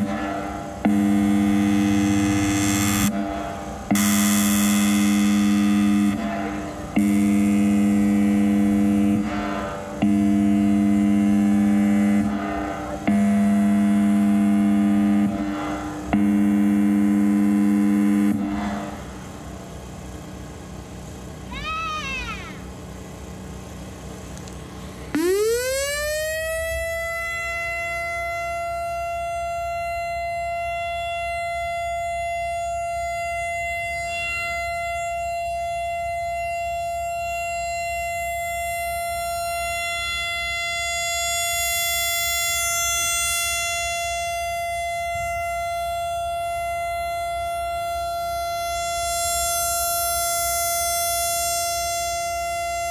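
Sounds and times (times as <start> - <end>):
warning siren: 0.0 - 24.0, 24.8 - 52.9.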